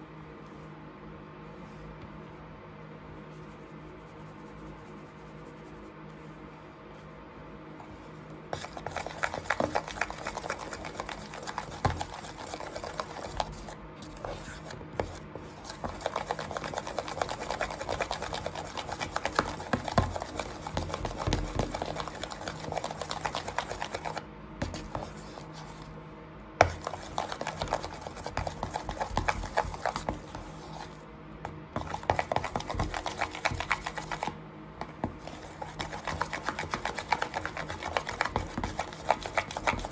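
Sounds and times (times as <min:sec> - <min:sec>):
spoon stirring sticky slime: 0:08.6 - 0:25.9, 0:26.6 - 0:31.0, 0:31.8 - 0:39.9.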